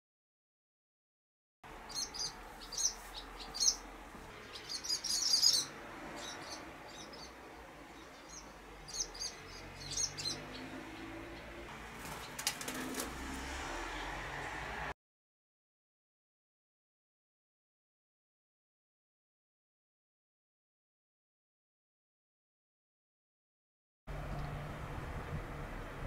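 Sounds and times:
swallows twittering: 1.9 - 12.4
wing flaps: 11.8 - 13.6.

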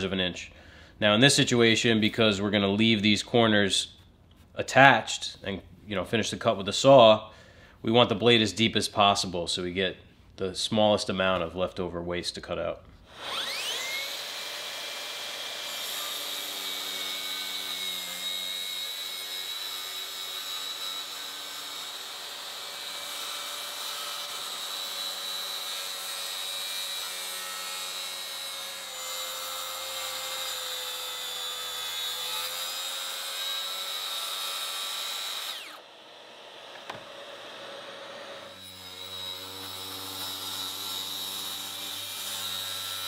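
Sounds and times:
circular saw cutting plywood: 13.1 - 43.0.

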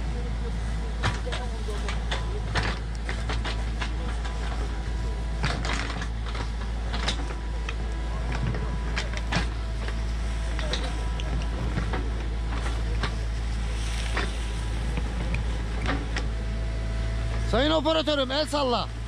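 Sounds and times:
excavator diesel engine running: 0.0 - 19.0.

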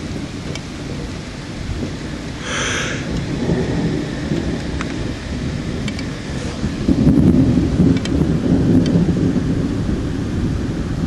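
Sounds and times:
rain falling: 0.0 - 11.0
thunder rumbling: 0.0 - 11.0
raindrop ticks: 0.1 - 1.1, 4.3 - 5.0, 5.8 - 6.1, 7.8 - 9.1.

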